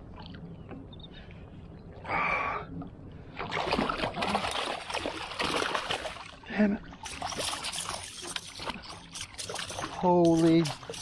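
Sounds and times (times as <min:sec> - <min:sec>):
fish thrashing and splashing: 0:03.4 - 0:06.4, 0:07.0 - 0:11.0.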